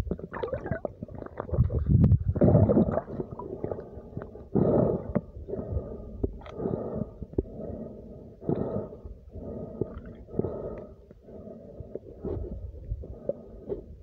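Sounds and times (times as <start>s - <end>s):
underwater gurgling and bubbling: 0.0s - 7.6s.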